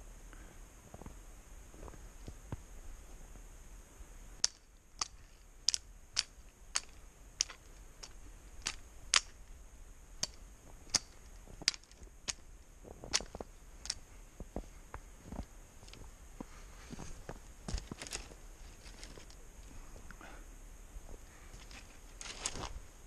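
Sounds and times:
footsteps crunching through snow: 0:12.8 - 0:19.3.

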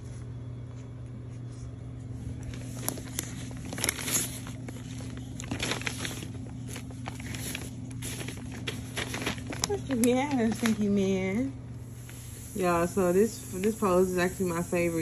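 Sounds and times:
steady low hum: 0:00.0 - 0:15.0
fabric rustling: 0:01.5 - 0:11.1.

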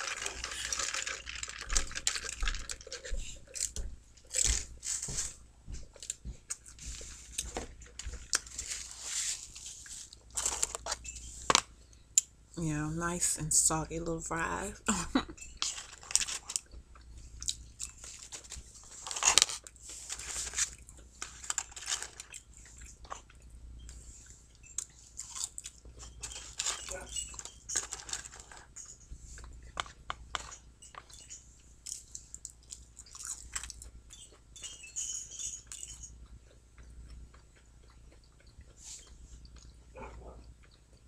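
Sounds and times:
paper carton crinkling: 0:00.0 - 0:03.7, 0:07.0 - 0:11.0, 0:18.0 - 0:22.3, 0:26.2 - 0:28.7
chewing and mouth noises: 0:00.0 - 0:04.8, 0:15.5 - 0:41.0
small clicks and crackles: 0:00.0 - 0:05.2, 0:15.4 - 0:41.0.

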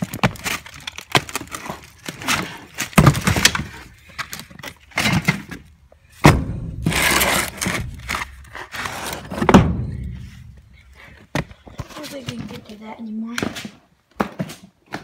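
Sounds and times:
wooden boards and blocks clunking: 0:00.0 - 0:15.0
heavy thuds: 0:06.1 - 0:12.6.

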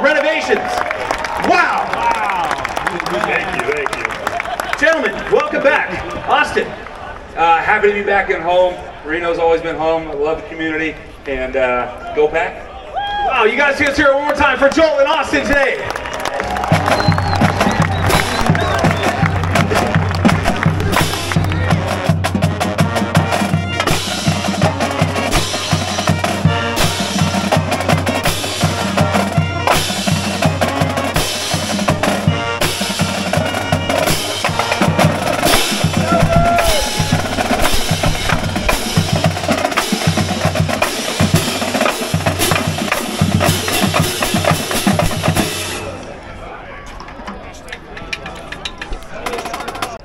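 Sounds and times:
snare drums: 0:16.5 - 0:45.8
bass drum: 0:16.6 - 0:45.6.

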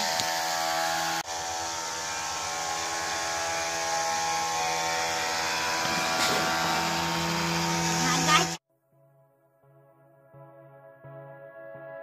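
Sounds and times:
small motors buzzing whine: 0:00.0 - 0:08.6.

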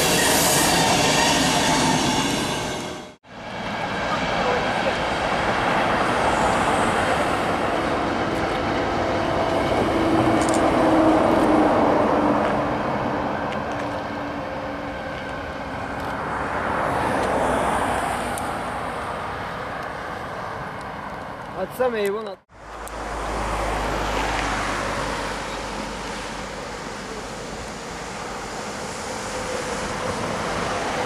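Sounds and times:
passing vehicle rumble: 0:22.5 - 0:31.0.

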